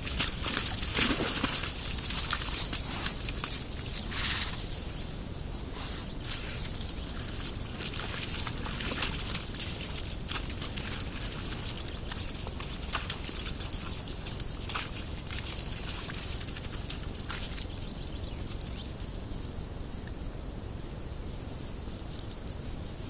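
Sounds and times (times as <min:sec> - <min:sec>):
wild boar rustling and scuffing: 0:00.0 - 0:23.0
steady hiss: 0:02.8 - 0:07.5.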